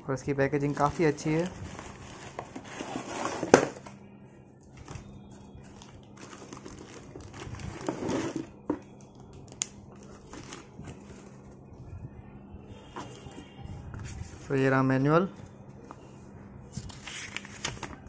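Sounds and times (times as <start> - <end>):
packaging rustling and crinkling: 0.6 - 3.9, 4.8 - 11.6.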